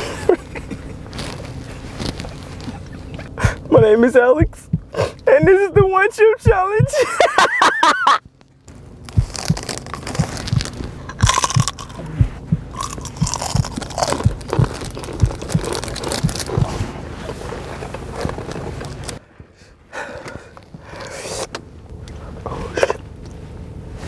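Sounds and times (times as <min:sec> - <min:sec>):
crunching and chewing chip: 0:08.7 - 0:12.1, 0:12.7 - 0:16.7.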